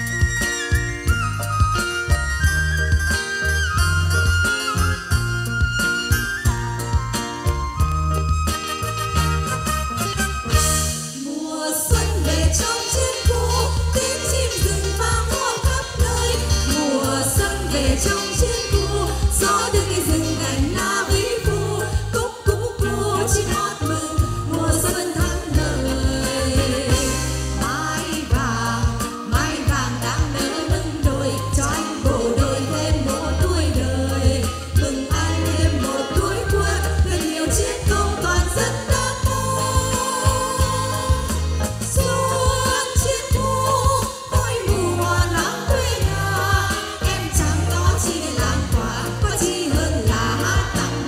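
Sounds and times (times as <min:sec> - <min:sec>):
live band playing: 0:00.0 - 0:51.0
female vocal trio singing: 0:11.2 - 0:51.0.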